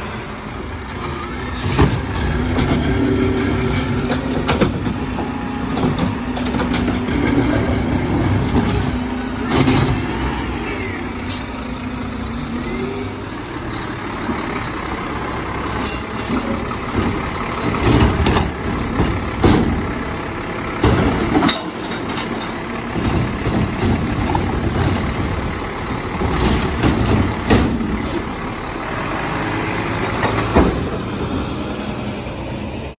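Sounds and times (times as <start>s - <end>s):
truck driving off: 0.0s - 32.9s
carts banging and knocking: 1.6s - 10.5s, 16.3s - 28.3s, 29.9s - 31.5s.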